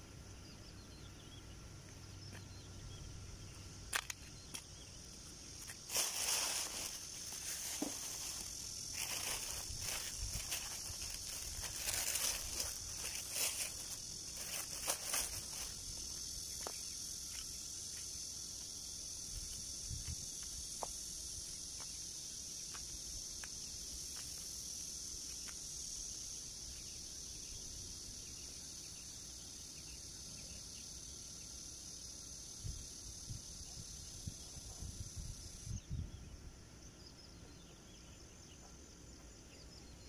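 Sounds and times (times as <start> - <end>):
high-pitched insect chorus: 0.0 - 40.0
plastic bag rustling: 5.9 - 15.8.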